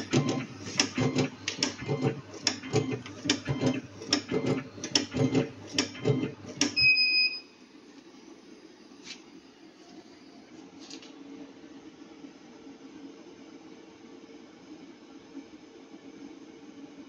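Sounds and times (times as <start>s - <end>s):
rope cutting machine clacking: 0.0s - 6.8s.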